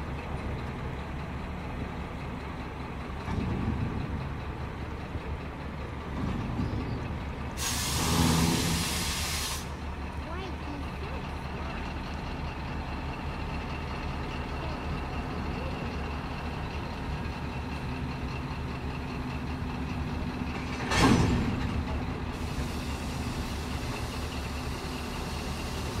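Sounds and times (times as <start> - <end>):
diesel locomotive engine idling: 0.0 - 26.0
air hiss burst: 7.6 - 9.8.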